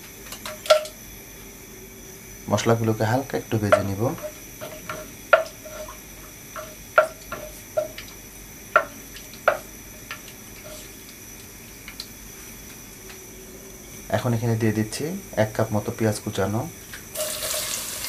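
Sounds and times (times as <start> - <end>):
wooden spatula knocking a pot: 3.7 - 10.2.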